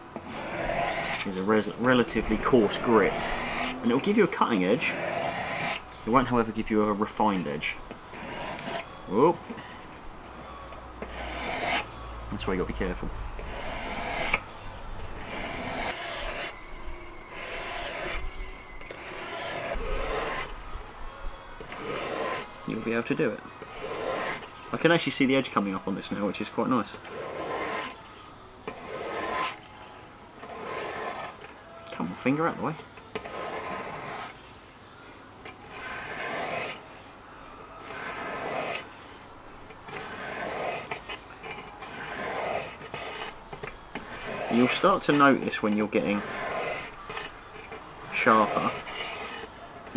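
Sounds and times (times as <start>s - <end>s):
whetstone scraping knife blade: 4.8s - 5.8s, 11.0s - 11.9s, 13.4s - 14.5s, 15.2s - 16.6s, 17.3s - 20.5s, 27.0s - 28.0s, 35.4s - 36.8s, 37.8s - 38.8s, 39.9s - 49.9s.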